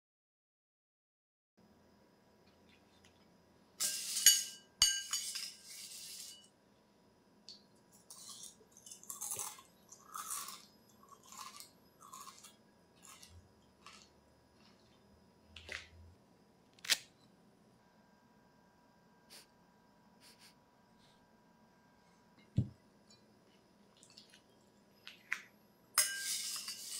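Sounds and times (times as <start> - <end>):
metal spoon scraping ceramic bowl: 3.8 - 6.5, 26.0 - 26.9
crunchy food being chewed: 8.0 - 16.1.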